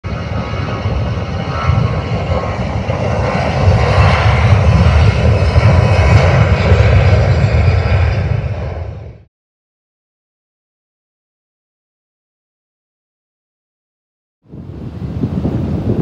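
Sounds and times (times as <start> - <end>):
jet engines roaring at takeoff: 0.0 - 9.3, 14.5 - 16.0.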